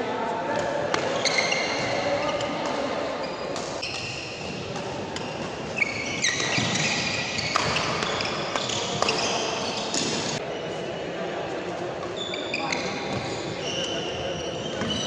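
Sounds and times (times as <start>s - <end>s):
shoes squeaking on court: 1.0s - 10.4s, 12.0s - 15.0s
racket hitting shuttlecock: 3.5s - 9.2s.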